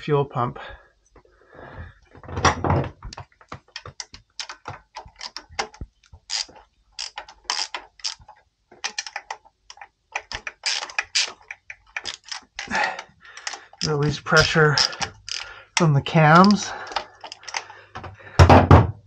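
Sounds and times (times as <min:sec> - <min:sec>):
ratchet wrench clicking: 0:04.0 - 0:12.8, 0:13.4 - 0:17.7.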